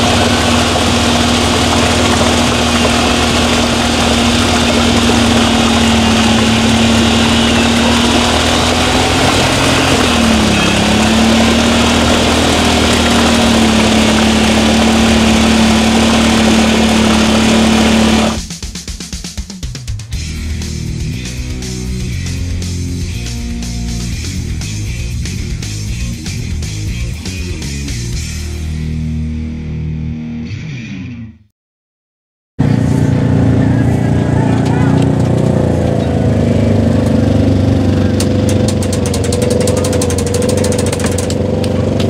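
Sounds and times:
vehicle engine revving: 0:00.0 - 0:18.5, 0:32.6 - 0:42.0.

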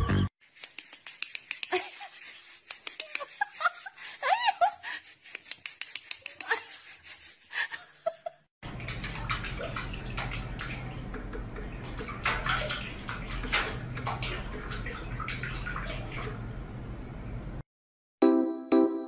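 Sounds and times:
tap water splashing into sink: 0:08.7 - 0:16.3.

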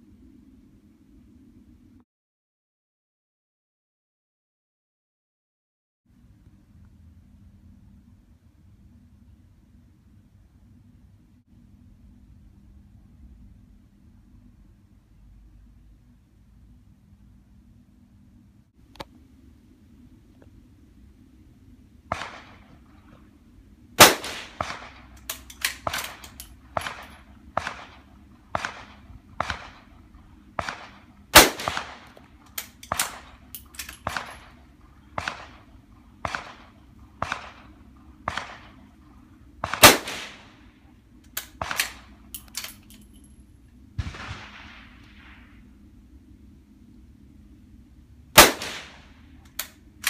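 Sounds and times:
loud rifle shots: 0:22.1 - 0:22.7, 0:24.0 - 0:32.2, 0:32.9 - 0:38.8, 0:39.6 - 0:40.6, 0:41.5 - 0:42.1, 0:44.0 - 0:45.5, 0:48.4 - 0:49.2
rifle shots cracking: 0:22.1 - 0:23.0, 0:24.0 - 0:40.7, 0:41.3 - 0:42.8, 0:44.0 - 0:45.5, 0:48.4 - 0:49.8.

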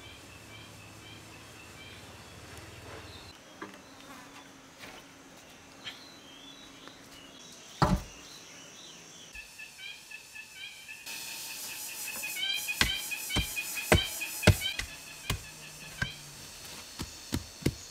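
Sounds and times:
birds chirping: 0:00.0 - 0:17.9
insect buzzing: 0:00.0 - 0:17.9
heavy thump of wooden post: 0:07.8 - 0:08.2.

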